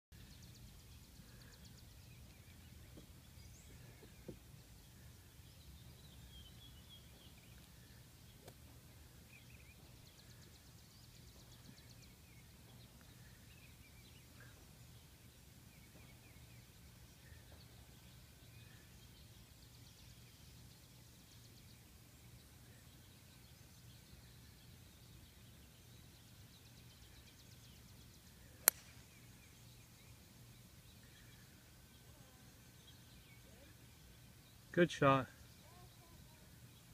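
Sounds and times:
faint low outdoor rumble: 0.2s - 36.9s
small click: 28.6s - 29.0s.

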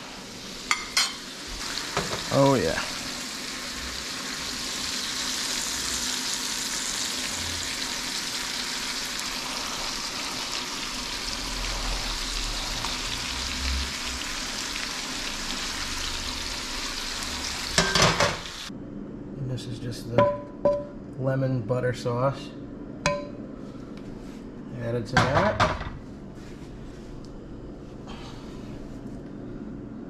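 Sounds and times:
fish sizzling in a pan: 0.0s - 18.7s.

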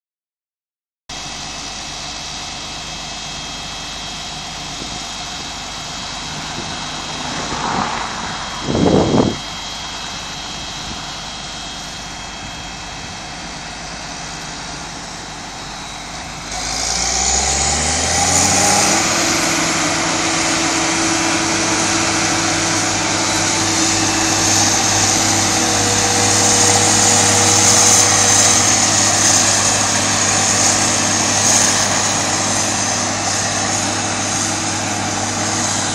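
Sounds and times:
harvester and tractor engines: 1.1s - 35.9s
loud rush: 4.7s - 11.7s, 15.6s - 35.9s.

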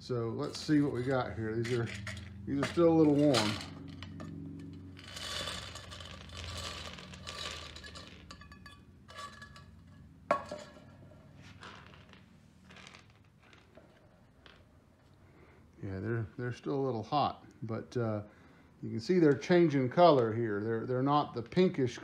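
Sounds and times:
clay pieces rattling in tin can: 0.6s - 8.5s
clay pieces clattering on bench: 1.6s - 10.9s.

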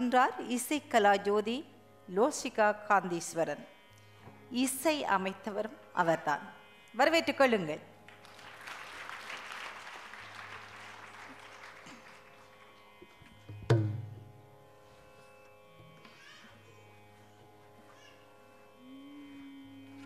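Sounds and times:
audience applause: 8.2s - 12.8s
drum stroke: 13.6s - 14.2s.

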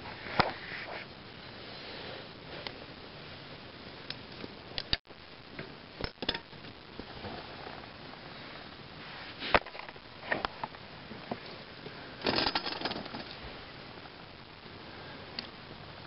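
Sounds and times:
low hiss: 0.0s - 16.0s.

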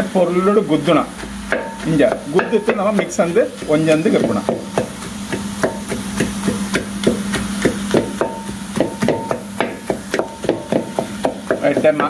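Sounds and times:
steady low hum: 0.0s - 12.0s
masher thudding potatoes in pot: 0.8s - 12.0s.

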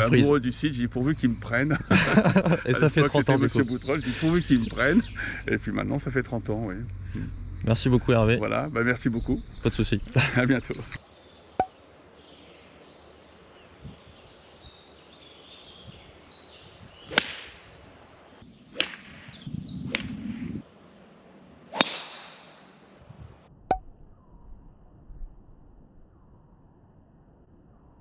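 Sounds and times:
faint bird chirps: 2.8s - 20.6s
golf clubs striking balls: 21.7s - 22.8s.

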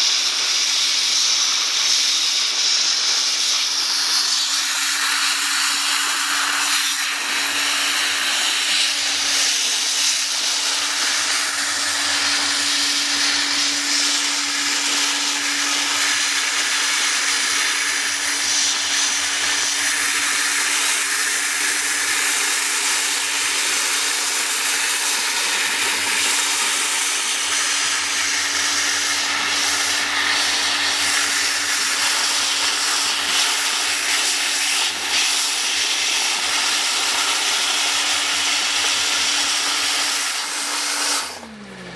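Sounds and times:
compressed air jet hissing: 0.0s - 41.9s
steady low hum: 3.8s - 34.4s.

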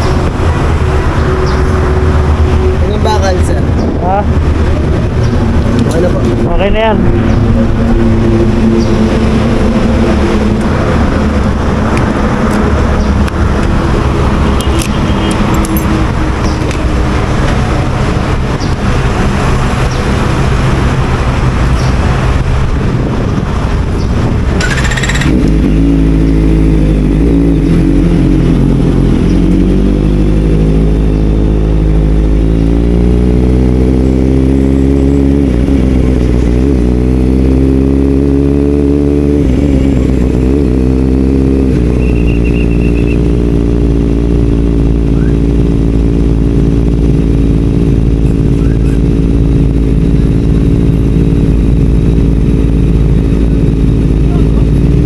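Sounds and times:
rushing noise: 0.0s - 31.0s
motorcycle engine running: 0.0s - 55.0s.

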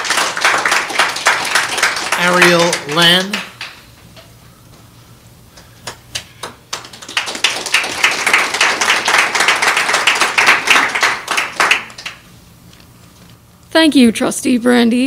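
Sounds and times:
audience clapping: 0.0s - 3.8s, 5.8s - 12.3s.

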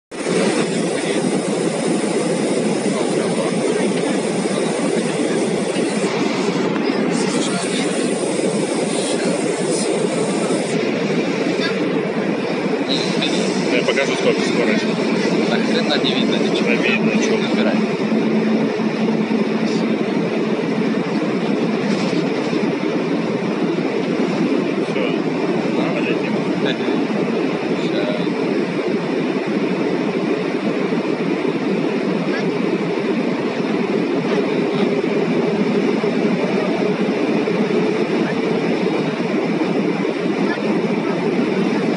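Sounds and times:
faint hum: 0.1s - 41.9s
jet engine rumble in cabin: 0.1s - 41.9s.

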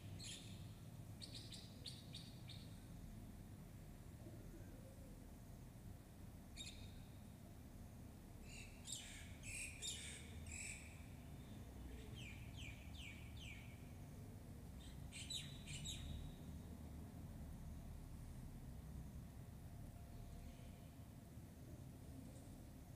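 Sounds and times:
low steady hum: 0.0s - 22.9s
small birds chirping faintly: 0.0s - 22.9s.

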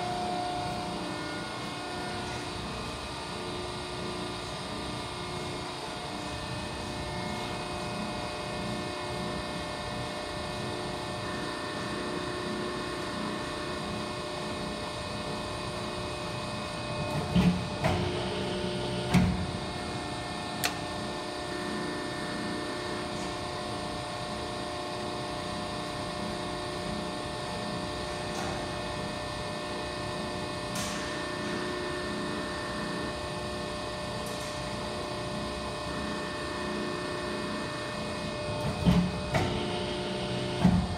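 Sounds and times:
hydraulic pump humming: 0.0s - 25.9s.

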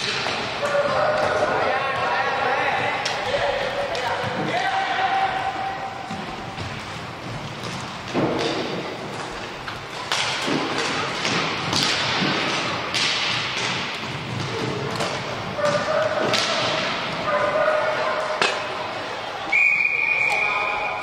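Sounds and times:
sticks and puck clacking on wood floor: 6.7s - 18.7s.

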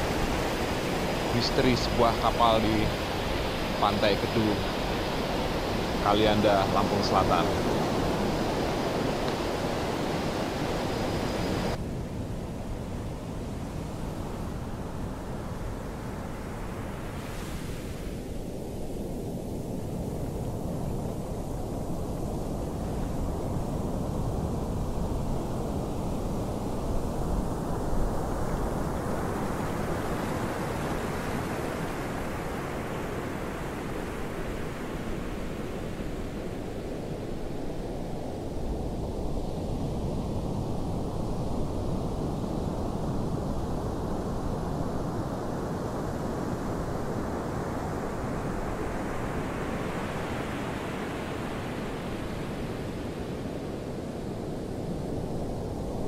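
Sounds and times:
surf rushing: 0.0s - 11.8s
surf breaking on a beach: 0.0s - 56.0s
wind: 0.0s - 56.0s.

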